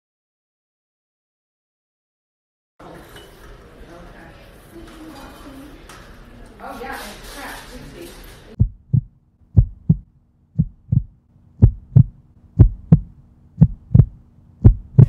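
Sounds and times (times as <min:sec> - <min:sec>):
faint steady hum: 0:08.5 - 0:15.0
heartbeat thumps: 0:08.6 - 0:15.0.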